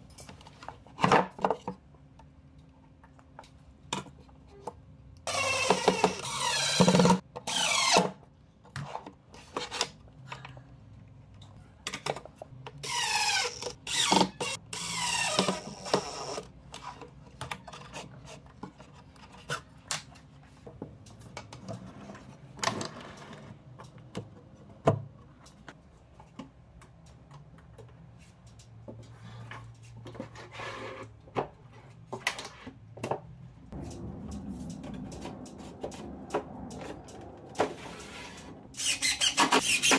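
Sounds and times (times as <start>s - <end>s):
sweeping pitch sound: 33.8s - 38.6s.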